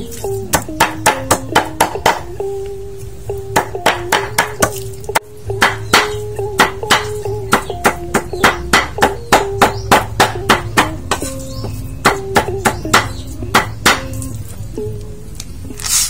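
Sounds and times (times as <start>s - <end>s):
background music: 0.0s - 16.0s
cleaver chopping on wooden block: 0.5s - 2.3s, 3.5s - 4.8s, 5.6s - 14.2s.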